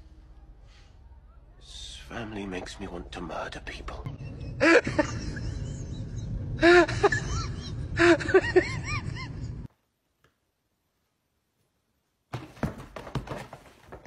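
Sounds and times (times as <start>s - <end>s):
steady low rumble: 1.6s - 9.7s.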